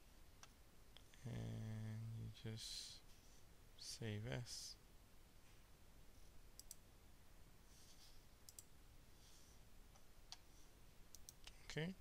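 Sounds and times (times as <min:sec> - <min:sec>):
computer mouse clicks: 0:06.6 - 0:06.8, 0:08.5 - 0:08.7, 0:11.1 - 0:11.6.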